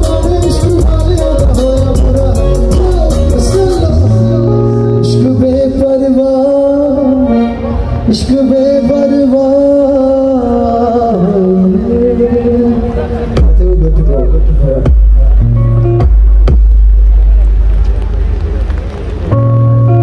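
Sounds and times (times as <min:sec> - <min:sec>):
live band music: 0:00.0 - 0:09.8, 0:13.1 - 0:18.0
man singing long held notes: 0:00.0 - 0:14.9
drum beat: 0:14.8 - 0:15.4, 0:16.0 - 0:17.4.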